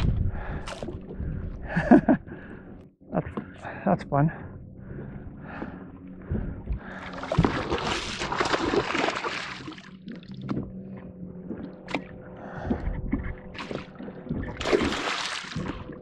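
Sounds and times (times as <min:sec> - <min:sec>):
water lapping: 0:00.0 - 0:16.0
faint steady hum: 0:00.1 - 0:07.7
fish thrashing and splashing: 0:06.9 - 0:10.6, 0:12.8 - 0:16.0.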